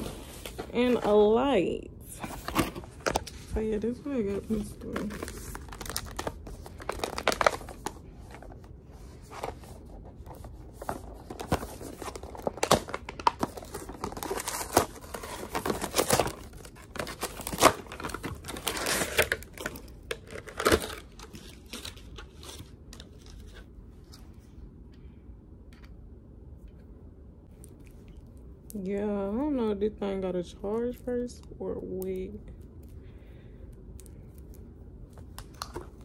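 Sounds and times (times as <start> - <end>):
plastic and cardboard crinkling: 0.0 - 24.2.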